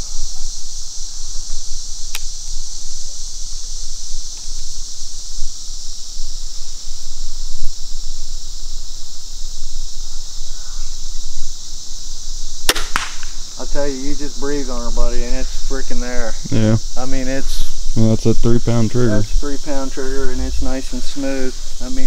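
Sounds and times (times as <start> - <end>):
insect chorus drone: 0.0 - 22.0.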